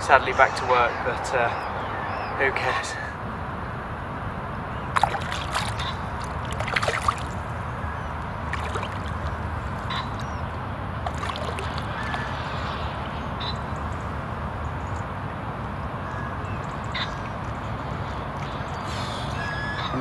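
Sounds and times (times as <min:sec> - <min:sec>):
water splashing: 0:04.8 - 0:19.8.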